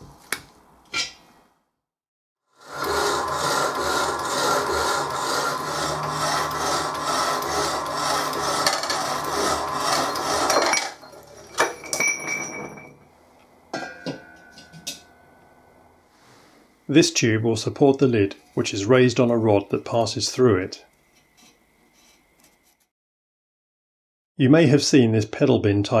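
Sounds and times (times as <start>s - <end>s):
low motor hum: 2.7s - 10.5s
metal clinks and knocks: 10.5s - 13.1s, 13.7s - 15.2s.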